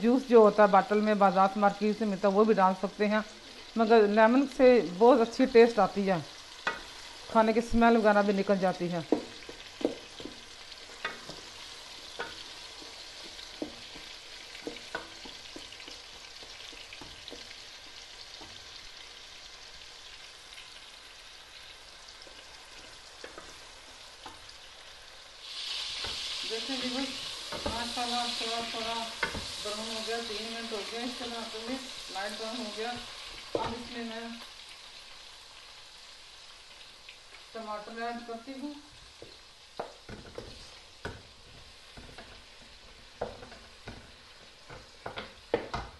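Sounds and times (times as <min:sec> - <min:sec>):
onions sizzling in oil: 0:00.0 - 0:45.9
wooden spoon scraping metal pot: 0:09.0 - 0:18.5.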